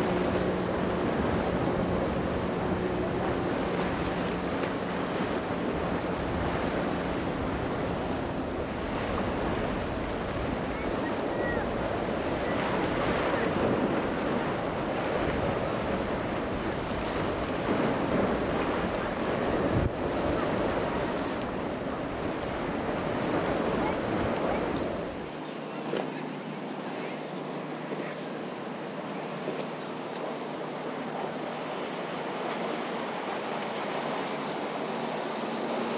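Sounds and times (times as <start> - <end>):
wind noise on microphone: 0.0 - 25.2
boat engine humming: 0.0 - 35.9
waves and surf washing: 0.0 - 35.9.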